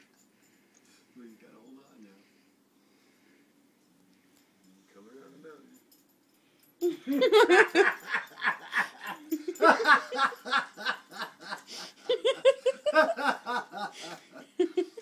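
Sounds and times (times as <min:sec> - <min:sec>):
person laughing: 0:06.8 - 0:15.0.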